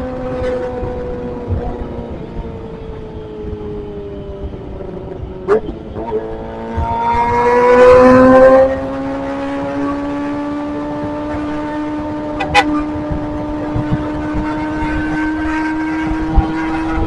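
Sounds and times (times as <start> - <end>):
motorcycle engine revving: 3.6 - 17.0.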